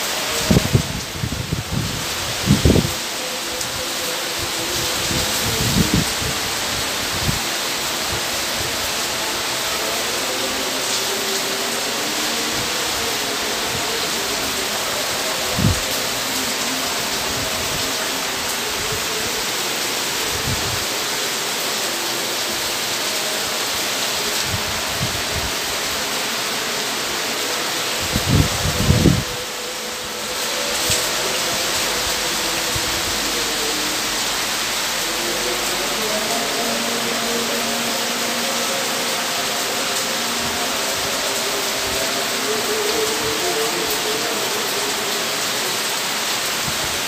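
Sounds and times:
heavy rain downpour: 0.0s - 47.0s
wind gusts buffeting microphone: 28.0s - 29.4s.

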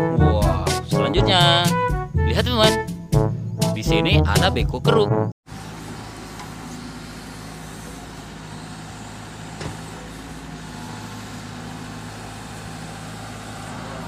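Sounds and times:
excavator diesel engine running: 5.5s - 14.0s.

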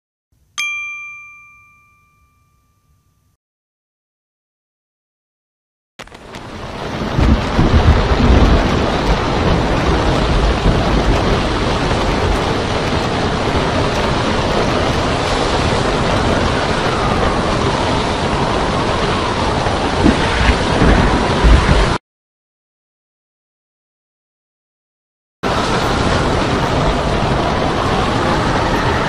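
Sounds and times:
wind and waves roaring: 6.0s - 22.0s, 25.4s - 29.0s
heavy low rumble: 6.8s - 22.0s, 25.5s - 29.0s.

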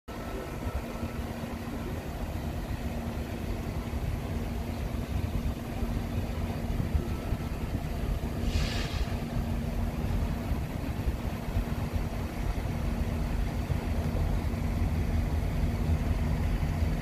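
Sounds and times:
diesel locomotive engine rumble: 0.1s - 17.0s
steady hum: 0.1s - 17.0s
short hiss: 8.4s - 9.4s.

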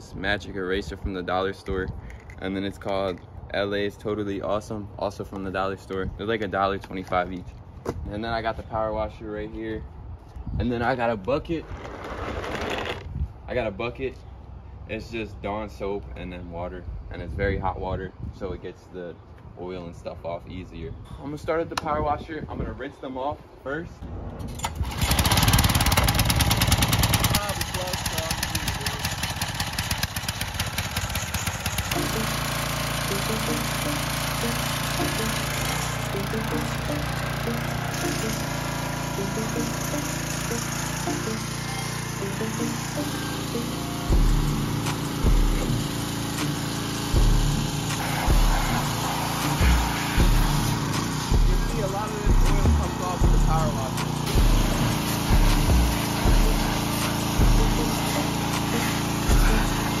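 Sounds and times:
pressure washer engine running: 24.8s - 60.0s
high-pressure water jet hissing: 31.6s - 60.0s.

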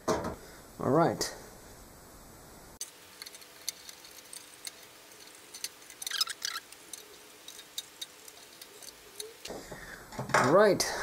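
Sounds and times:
metal scrape: 2.9s - 9.5s
screwdriver clicking on screws: 3.1s - 9.5s.

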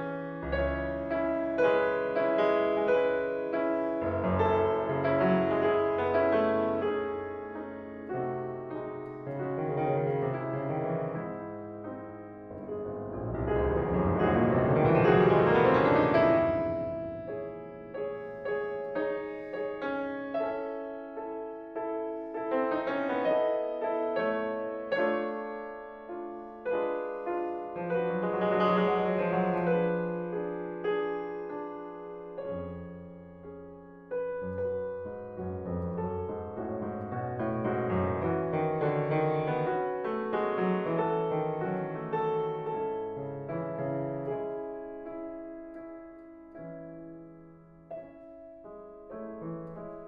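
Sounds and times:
solo classical piano: 0.0s - 50.0s.

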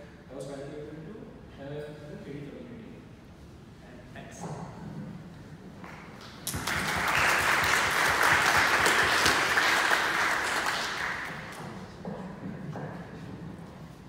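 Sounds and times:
audience applauding: 6.2s - 11.6s.

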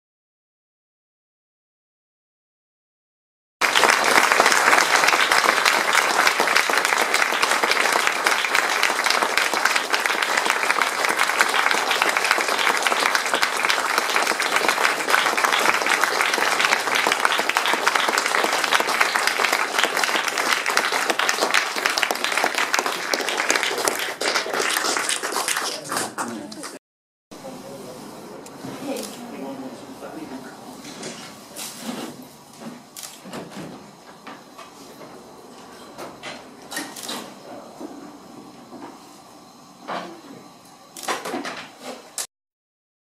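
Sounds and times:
audience applauding: 3.6s - 26.8s.

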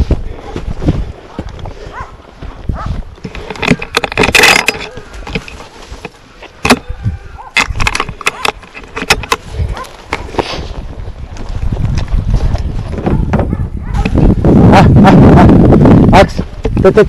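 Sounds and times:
dry brush rustling: 4.8s - 6.6s, 8.3s - 13.0s.

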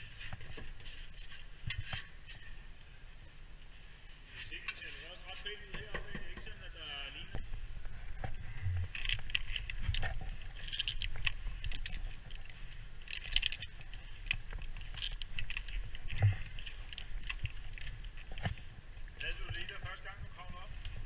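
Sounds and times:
carabiners clinking and rattling: 8.9s - 18.6s.

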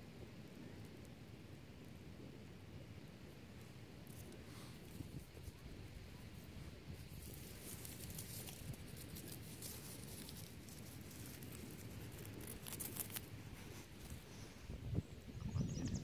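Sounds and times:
dry straw crackling and rustling: 3.6s - 15.0s.

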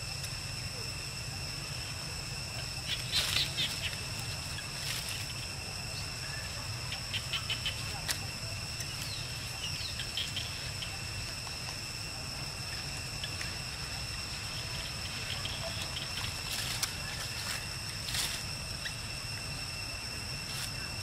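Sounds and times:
steady high whine: 0.0s - 21.0s
dry leaves crackling and rustling: 2.9s - 6.5s, 12.8s - 18.8s.

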